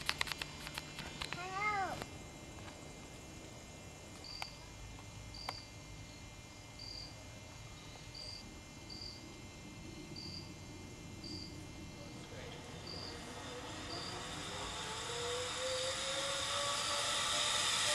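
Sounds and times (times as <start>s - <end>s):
sharp clicks: 0.0s - 1.4s
insect chirping in high pulses: 6.8s - 17.9s.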